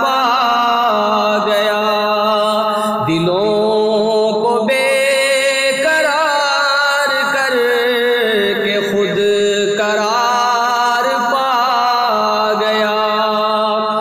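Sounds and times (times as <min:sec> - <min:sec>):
man singing: 0:00.0 - 0:14.0.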